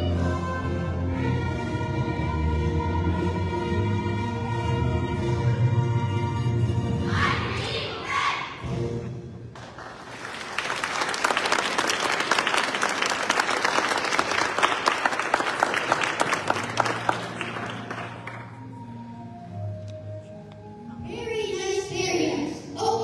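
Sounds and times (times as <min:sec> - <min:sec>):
music: 0:00.0 - 0:11.0, 0:13.7 - 0:23.0
audience applause: 0:09.6 - 0:18.6.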